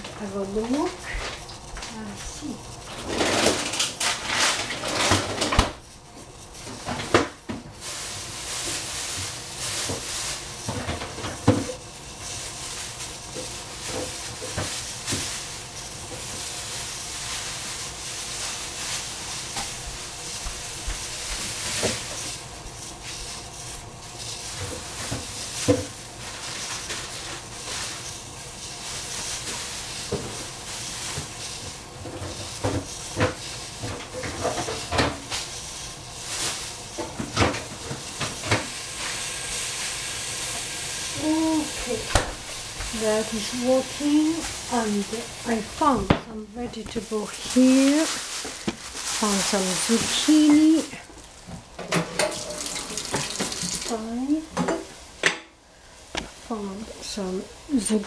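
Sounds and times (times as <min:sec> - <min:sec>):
kitchen clatter: 0:00.0 - 0:39.9, 0:41.0 - 0:55.6
shrimp sizzling in a pan: 0:00.2 - 0:03.0, 0:05.8 - 0:58.0.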